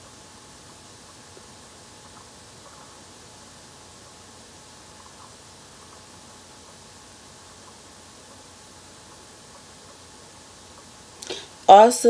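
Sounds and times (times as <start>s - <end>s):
faint recording hiss: 0.0s - 12.0s.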